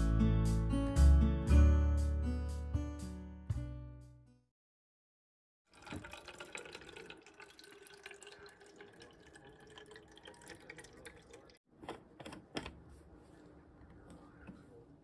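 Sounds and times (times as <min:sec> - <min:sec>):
oil pouring into plastic bottle: 0:05.7 - 0:11.6.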